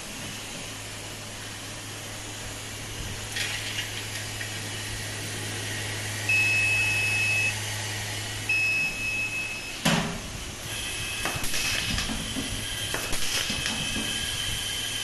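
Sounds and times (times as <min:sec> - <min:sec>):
vibratory bowl humming: 0:04.0 - 0:09.8
high electronic beeps: 0:06.3 - 0:07.6, 0:08.5 - 0:09.8.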